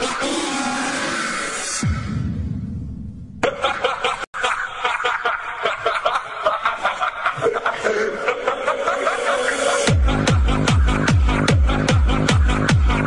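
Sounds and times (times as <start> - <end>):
sped-up song with rapid laughter: 3.3 - 13.0.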